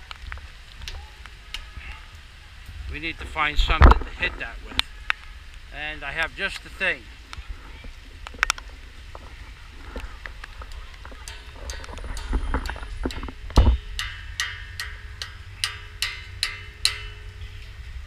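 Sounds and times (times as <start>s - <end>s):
faint ringing hum: 11.1s - 18.0s
church bell clanks: 13.7s - 17.4s.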